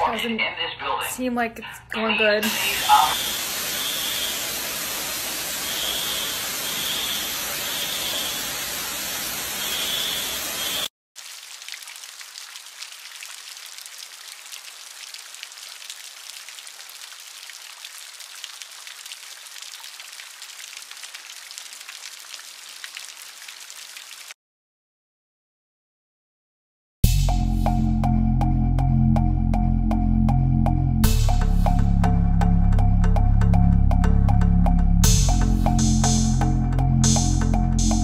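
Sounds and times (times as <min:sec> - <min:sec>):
water gushing from a pipe: 0:02.5 - 0:24.4
alarm beeping: 0:05.6 - 0:08.4, 0:09.6 - 0:10.9
water dripping onto a floor: 0:11.2 - 0:24.4.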